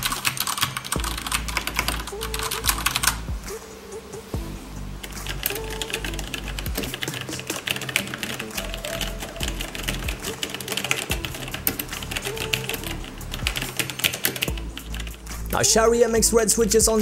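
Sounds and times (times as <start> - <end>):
fast typing on mechanical keyboard: 0.0 - 3.2, 5.4 - 15.2
background music: 0.0 - 17.0.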